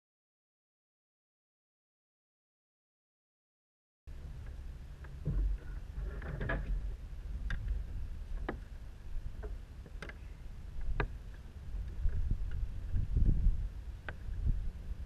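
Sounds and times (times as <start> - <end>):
low steady rumble: 4.1 - 15.0.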